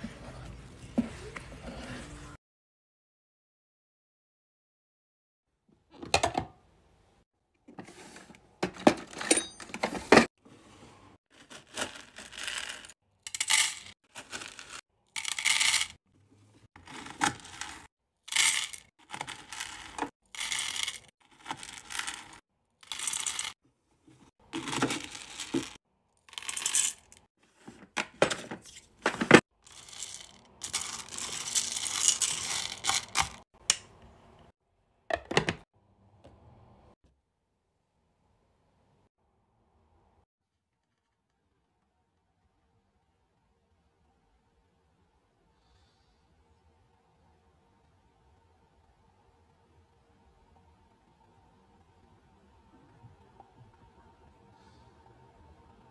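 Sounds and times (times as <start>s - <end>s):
wax beads rattling into metal pot: 11.4s - 16.0s, 16.8s - 23.6s, 24.6s - 27.2s, 29.6s - 33.4s.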